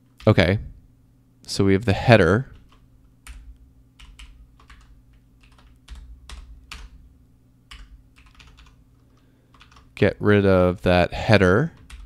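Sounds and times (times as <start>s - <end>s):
computer keyboard typing: 2.5s - 7.0s, 7.7s - 9.9s, 11.8s - 12.0s.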